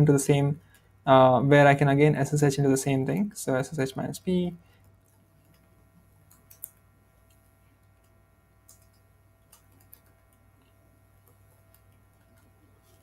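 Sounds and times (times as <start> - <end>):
low steady hum: 0.0 - 13.0
keyboard keystrokes: 8.7 - 10.4.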